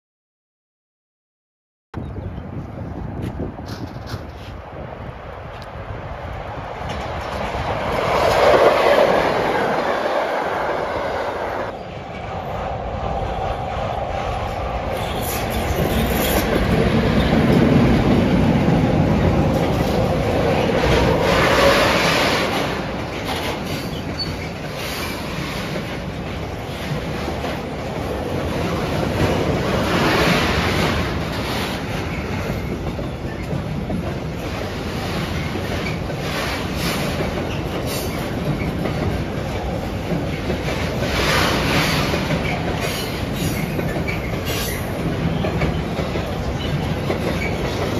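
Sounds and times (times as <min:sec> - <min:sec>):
freight train wheels rumbling: 0:02.0 - 0:47.9
wheels clattering over rail joints: 0:15.0 - 0:47.9.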